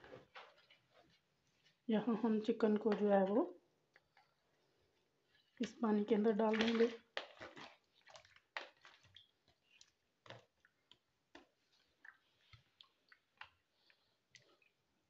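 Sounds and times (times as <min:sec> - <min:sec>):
chicken pieces splashing in water: 0:05.6 - 0:13.6.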